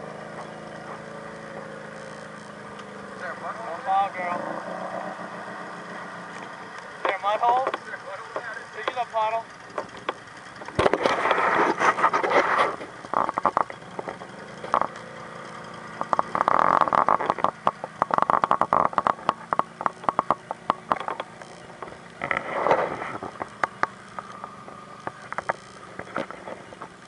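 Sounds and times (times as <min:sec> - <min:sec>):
faint vehicle engine idling: 0:00.0 - 0:27.0
sharp clicks and scrapes: 0:09.7 - 0:27.0
short rushes of noise: 0:22.2 - 0:23.4.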